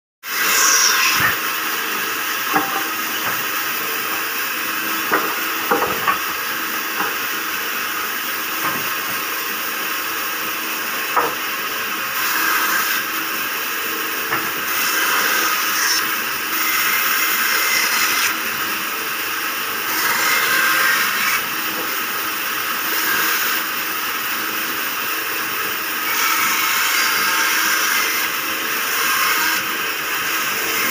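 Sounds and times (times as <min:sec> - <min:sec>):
saw blade cutting wood: 0:00.2 - 0:30.9
band saw motor hum: 0:00.3 - 0:30.9
sharp knocks: 0:02.5 - 0:03.4, 0:05.1 - 0:06.2.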